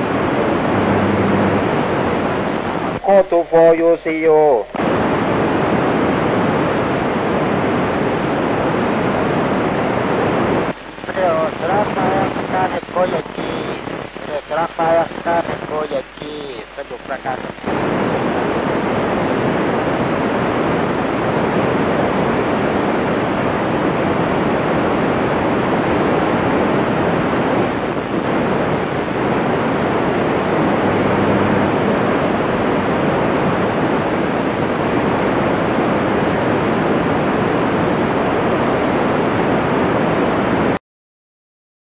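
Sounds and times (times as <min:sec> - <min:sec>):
radio receiver hiss: 0:00.0 - 0:08.3, 0:09.0 - 0:19.2, 0:26.7 - 0:34.6.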